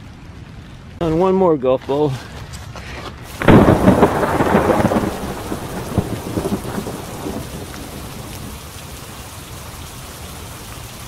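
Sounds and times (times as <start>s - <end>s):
steady rain: 0.0s - 2.3s, 3.3s - 11.0s
thunderclap rumbling: 3.3s - 9.0s.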